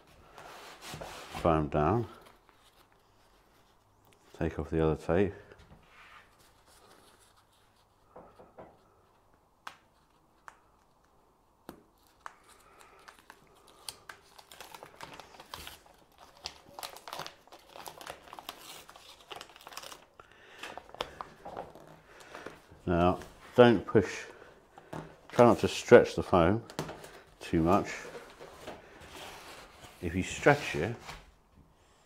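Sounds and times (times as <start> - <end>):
foil tape crinkling and tearing: 11.8 - 22.6.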